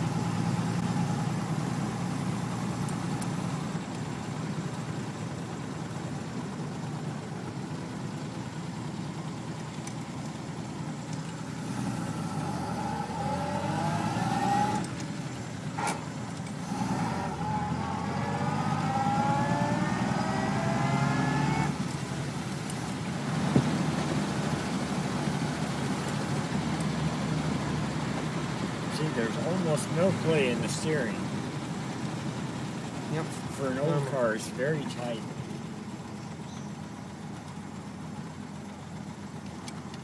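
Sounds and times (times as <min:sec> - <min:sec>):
gear change click: 0:09.6 - 0:10.4, 0:14.7 - 0:15.2, 0:39.4 - 0:40.0
car engine whine accelerating: 0:10.9 - 0:39.8.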